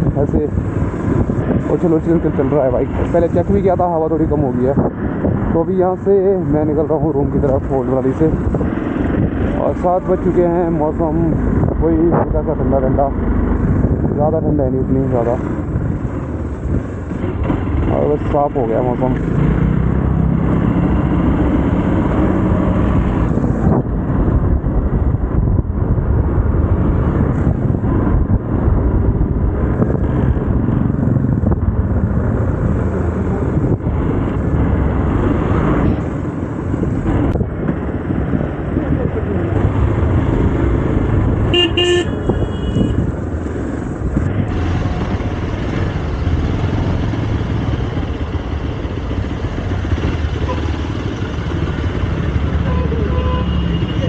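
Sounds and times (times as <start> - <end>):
motorcycle engine rumble: 0.0 - 54.0
road noise: 0.0 - 54.0
vehicle horn toot: 41.5 - 43.1, 53.0 - 54.0.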